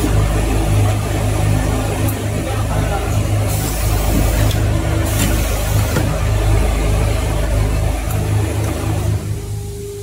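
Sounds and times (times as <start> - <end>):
machine pulsing hum: 0.0 - 10.0
pneumatic hiss: 3.5 - 6.2.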